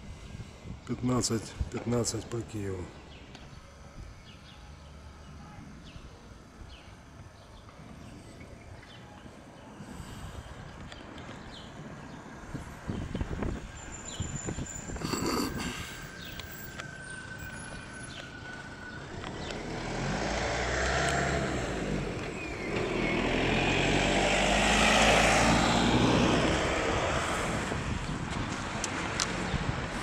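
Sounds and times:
motor vehicle passing: 18.1 - 30.0.

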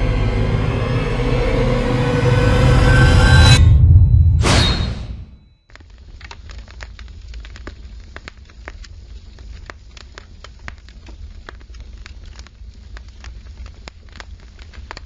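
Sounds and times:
fire crackling: 5.7 - 15.0.

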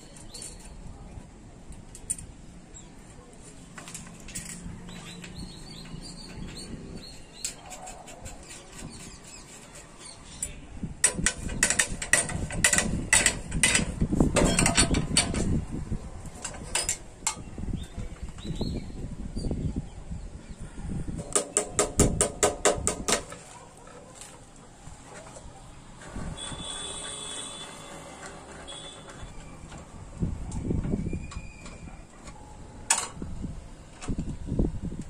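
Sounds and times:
spanner clinking on bolts: 11.0 - 15.5, 16.4 - 17.5.

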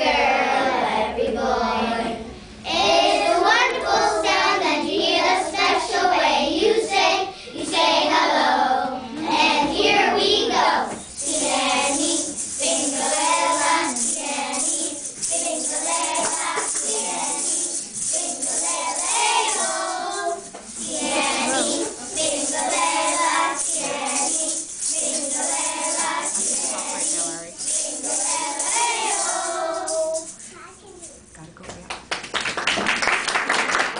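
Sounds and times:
children's choir singing: 0.0 - 30.3
maracas rattling: 10.7 - 31.4.

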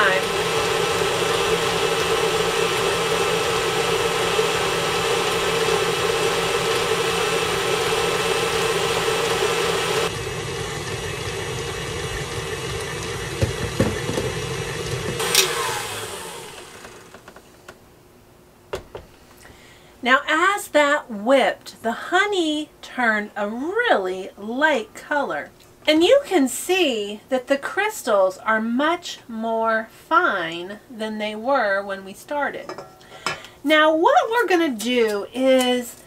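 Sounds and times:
stand mixer running: 0.0 - 17.3.

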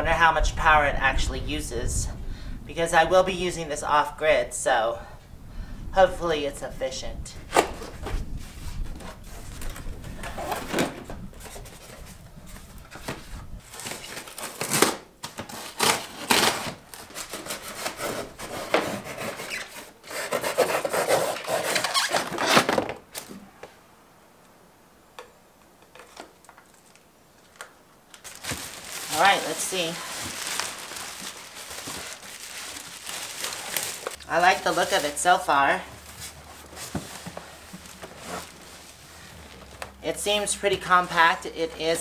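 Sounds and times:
cardboard scraping and rubbing: 7.5 - 22.9, 28.2 - 39.9.

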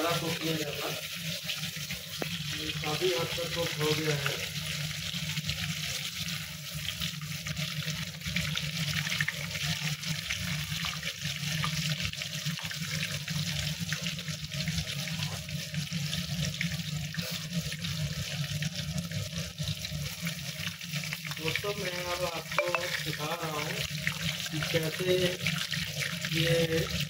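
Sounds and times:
chicken sizzling in oil: 0.0 - 27.0.

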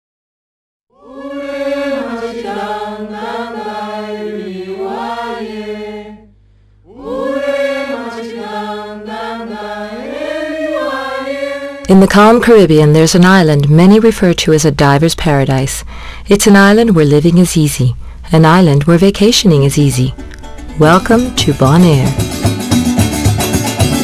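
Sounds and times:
wordless voices chanting: 0.9 - 6.3, 6.9 - 12.3.

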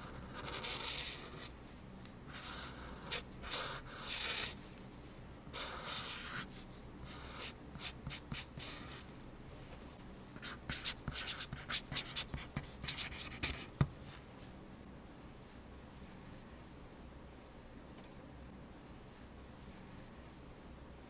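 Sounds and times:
marker scratching on paper: 0.0 - 1.5, 2.3 - 4.6, 5.5 - 9.1, 10.4 - 14.0.

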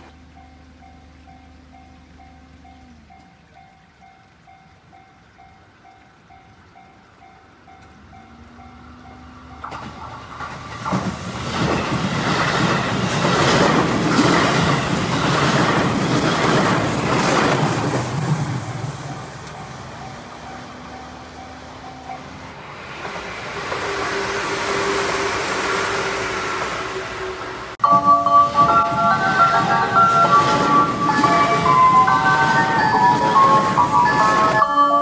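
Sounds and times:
level crossing warning bell: 0.0 - 10.2, 19.1 - 22.6, 27.8 - 35.0
electric train passing: 0.0 - 35.0
train wheels clattering over rail joints: 9.6 - 27.8.

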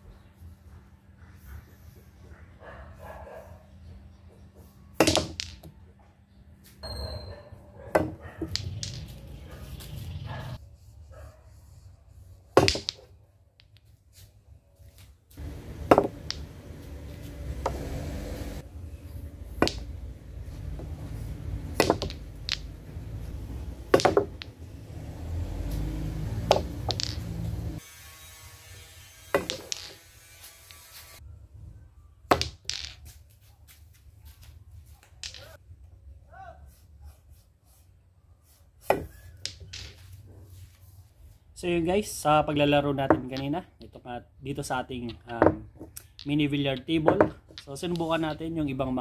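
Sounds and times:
pool balls clacking: 5.0 - 5.8, 7.9 - 9.5, 12.6 - 13.8, 15.4 - 18.7, 19.3 - 27.8, 29.4 - 30.1, 35.2 - 35.6, 39.0 - 40.1, 42.9 - 43.5, 44.9 - 48.6
cue tip hitting ball: 15.4 - 18.6, 19.6 - 19.9, 20.7 - 27.8.

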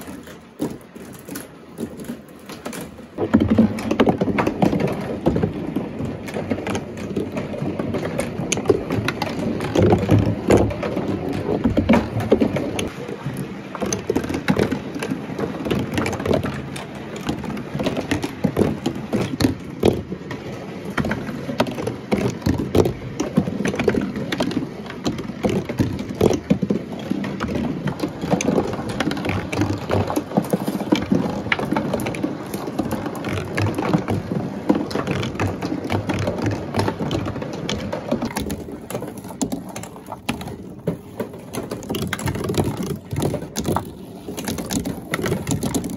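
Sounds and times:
marbles rolling on cardboard: 25.1 - 45.9.

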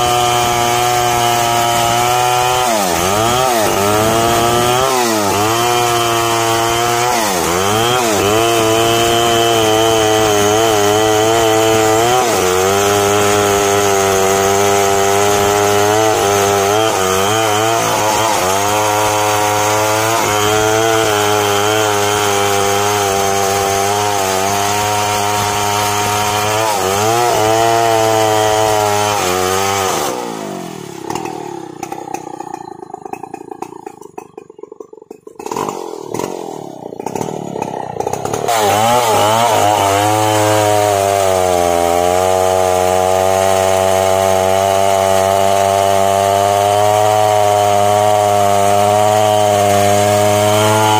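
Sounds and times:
chainsaw cutting wood: 0.0 - 50.9.

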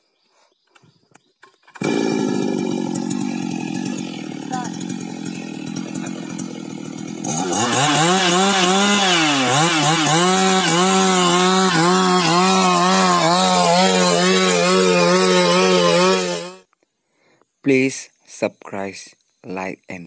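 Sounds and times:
chainsaw cutting timber: 1.7 - 16.7.

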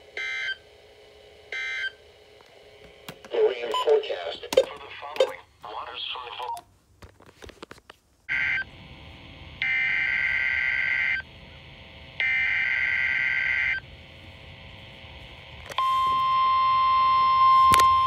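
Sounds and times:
steady warning alarm tone: 0.2 - 0.6, 1.5 - 2.0, 8.3 - 8.8, 9.6 - 11.3, 12.2 - 13.9, 15.8 - 18.0.

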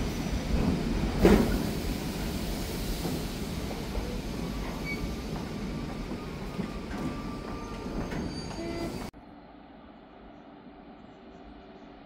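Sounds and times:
freight train wagons rolling: 0.0 - 9.1.

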